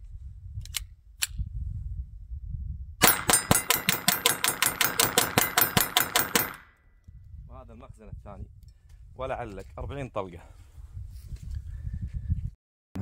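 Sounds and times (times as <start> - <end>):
pistol shots in quick succession: 3.0 - 6.6.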